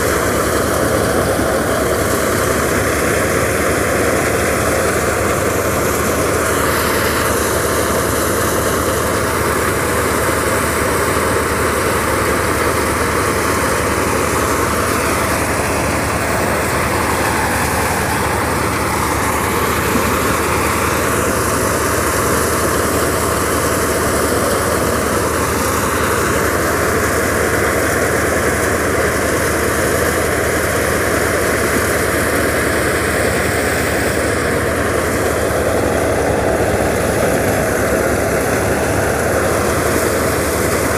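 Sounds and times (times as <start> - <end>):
thresher drum whirring: 0.0 - 40.9
tractor engine drone: 0.0 - 40.9.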